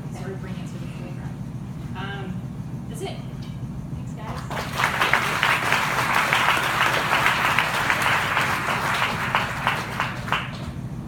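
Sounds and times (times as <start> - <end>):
audience applauding: 4.3 - 10.8.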